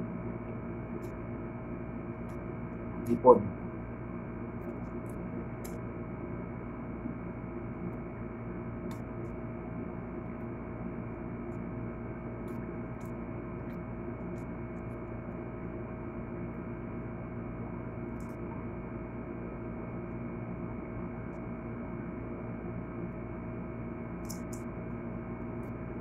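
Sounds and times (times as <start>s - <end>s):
steady hum of held tones: 0.0s - 26.0s
faint small clicks: 24.2s - 24.7s.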